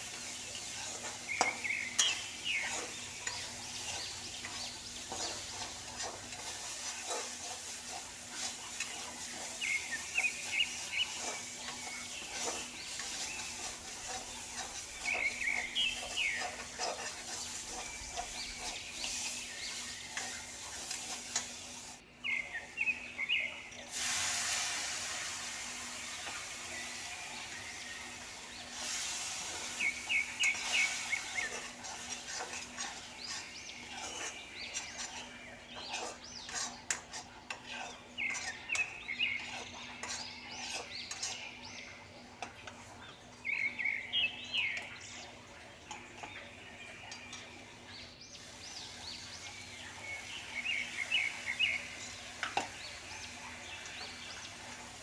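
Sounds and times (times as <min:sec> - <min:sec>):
metal spatula scraping pan: 0:00.0 - 0:21.9, 0:23.9 - 0:42.9
spices sizzling in a pan: 0:00.0 - 0:46.5, 0:47.6 - 0:55.0
bird chirping: 0:00.2 - 0:21.6, 0:22.2 - 0:23.9, 0:26.1 - 0:42.3, 0:42.9 - 0:55.0.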